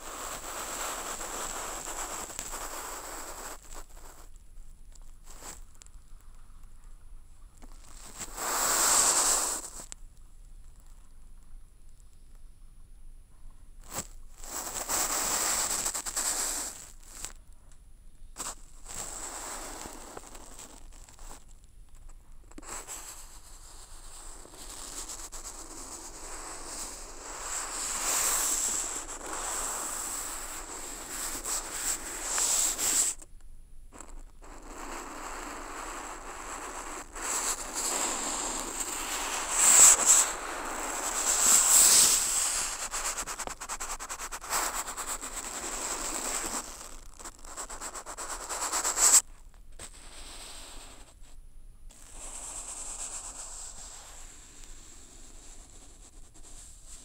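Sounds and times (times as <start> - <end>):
brush scratching across paper: 22.6 - 33.2, 34.0 - 51.2, 52.0 - 57.0.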